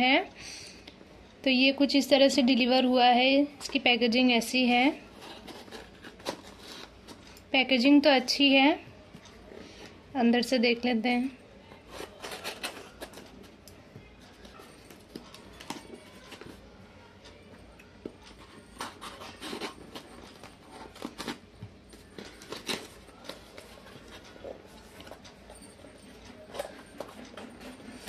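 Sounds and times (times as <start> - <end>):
scissors cutting tape and cardboard: 5.1 - 7.4, 11.8 - 13.4, 18.0 - 21.4, 22.1 - 23.4.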